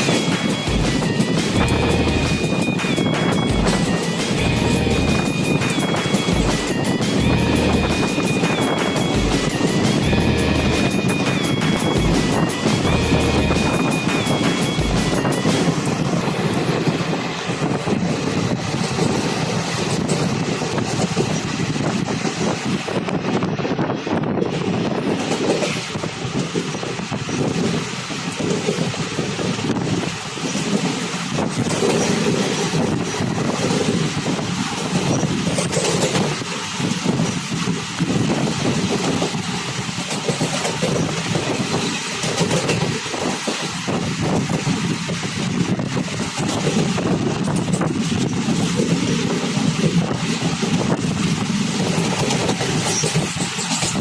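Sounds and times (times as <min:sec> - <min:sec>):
train wheels rumbling on rails: 0:00.0 - 0:54.0
wind noise on microphone: 0:00.0 - 0:54.0
vehicle running rumble: 0:00.6 - 0:02.5, 0:03.4 - 0:05.5, 0:06.3 - 0:08.2.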